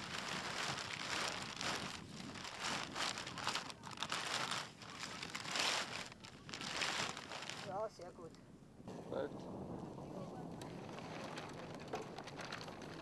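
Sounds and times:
sail fabric crinkling: 0.0s - 8.1s, 10.6s - 13.0s.

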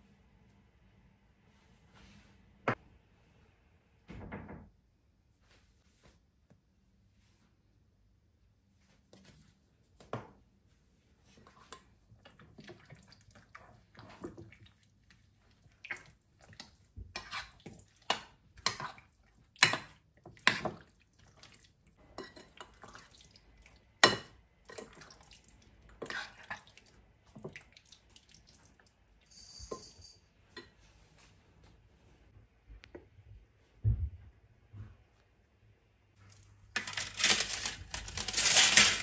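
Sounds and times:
marinade squelching: 11.4s - 29.0s
spoon clinking on glass: 29.3s - 30.2s.

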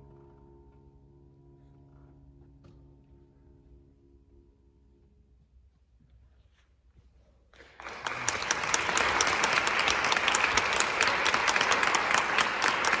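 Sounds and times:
audience applause: 7.6s - 13.0s.

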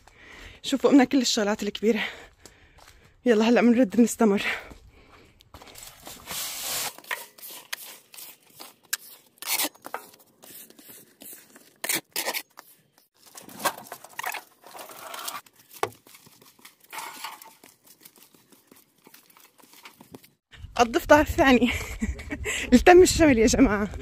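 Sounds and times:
objects rustling and scraping: 5.6s - 20.4s.

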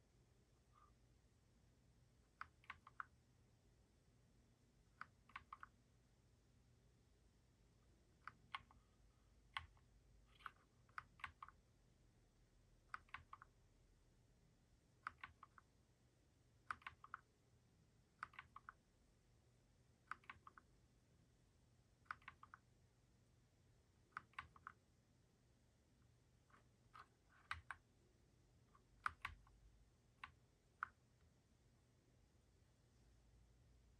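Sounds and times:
mechanical keyboard keys clicking: 9.6s - 11.6s, 13.0s - 13.5s, 15.1s - 15.6s, 16.7s - 17.2s, 18.2s - 18.7s, 27.0s - 27.8s.

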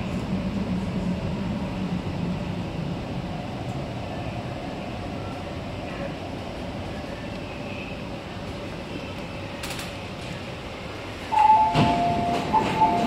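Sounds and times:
train rumble: 0.0s - 13.0s
sliding doors clunk: 11.4s - 13.0s.

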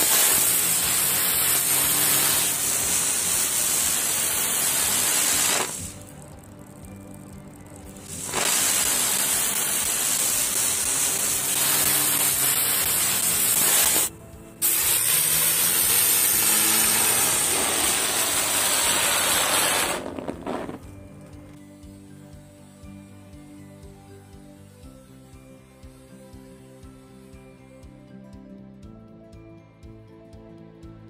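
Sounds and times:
fireworks spraying hiss: 0.0s - 6.1s, 8.0s - 21.0s.

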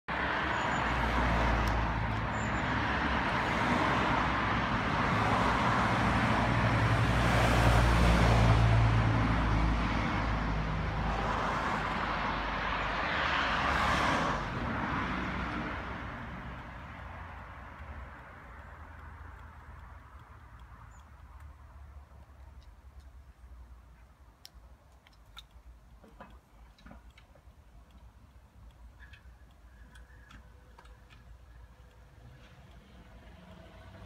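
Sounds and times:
road traffic: 0.1s - 34.0s
van passing: 28.9s - 34.0s.

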